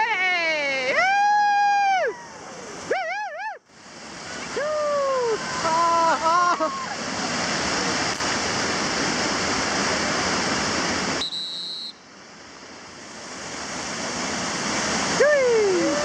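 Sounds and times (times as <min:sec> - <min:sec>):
river rapid rushing: 0:00.0 - 0:16.0.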